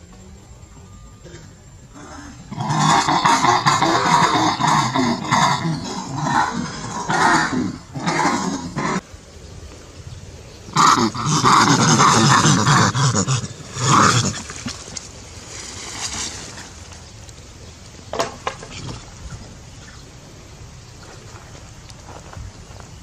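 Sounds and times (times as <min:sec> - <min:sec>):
macaque harsh call: 0:02.0 - 0:09.0, 0:10.7 - 0:14.6.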